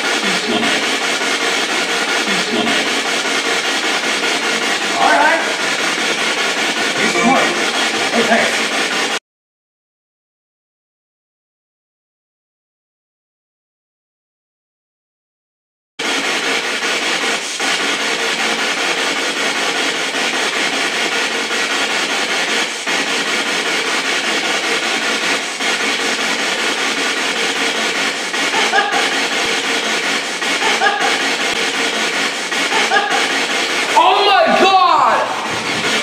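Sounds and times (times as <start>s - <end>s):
loud static hiss: 0.0s - 9.2s.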